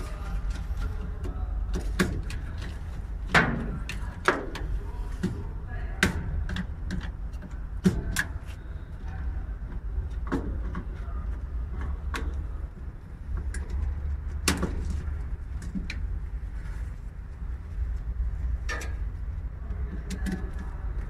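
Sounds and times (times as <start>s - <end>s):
clicks and knocks in metal cabinet: 1.6s - 8.4s.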